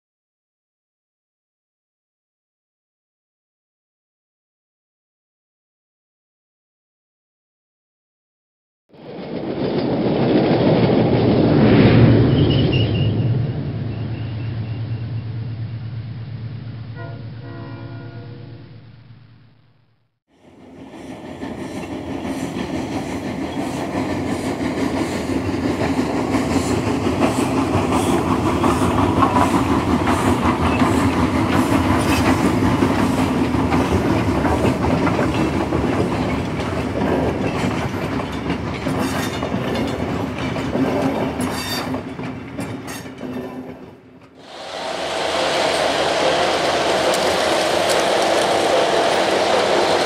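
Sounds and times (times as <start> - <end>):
train rumbling on rails: 9.0 - 19.5, 20.3 - 50.0
wheel clickety-clack: 21.0 - 44.4.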